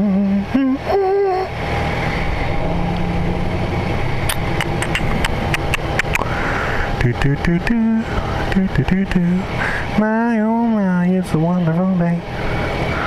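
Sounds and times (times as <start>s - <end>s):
man humming: 0.0s - 1.5s
sharp clicks: 4.3s - 6.3s.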